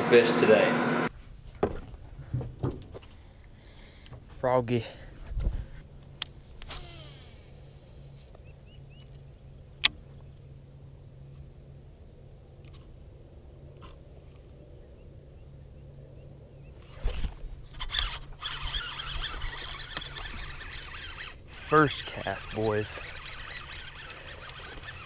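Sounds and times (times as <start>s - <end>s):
thumps and rustling: 1.4s - 3.2s
fishing reel click: 17.8s - 25.0s.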